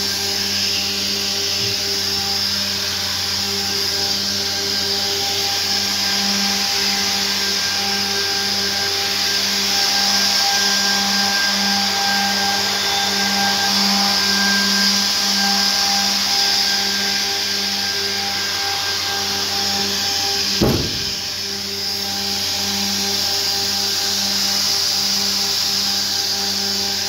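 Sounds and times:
machine whirring: 20.6s - 21.6s.

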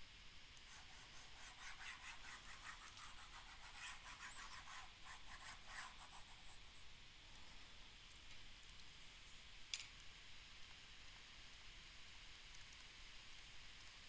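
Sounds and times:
stylus scratching tablet screen: 0.7s - 6.9s.

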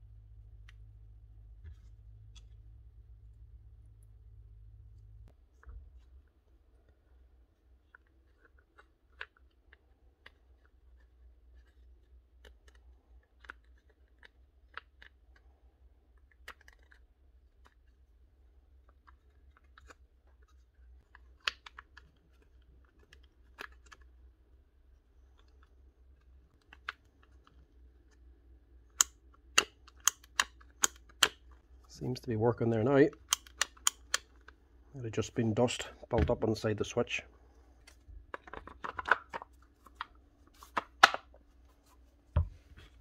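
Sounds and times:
plastic parts clicking: 7.8s - 18.1s, 18.7s - 24.1s, 25.2s - 31.6s, 33.0s - 34.6s, 37.8s - 41.4s.

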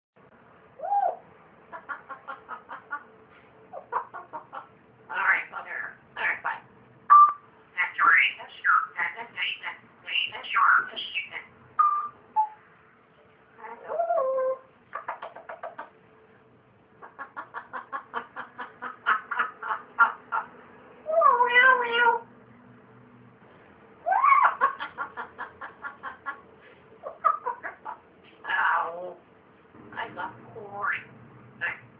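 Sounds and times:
parrot mimicking laughter: 0.8s - 3.0s, 3.7s - 6.6s, 7.8s - 12.1s, 13.7s - 15.9s, 17.0s - 20.5s, 24.0s - 26.4s, 27.0s - 29.2s
parrot whistle: 7.1s - 12.6s.

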